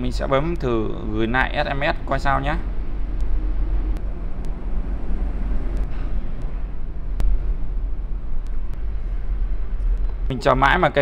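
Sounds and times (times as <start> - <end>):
low background rumble: 0.0 - 11.0
sharp clicks: 3.0 - 4.6.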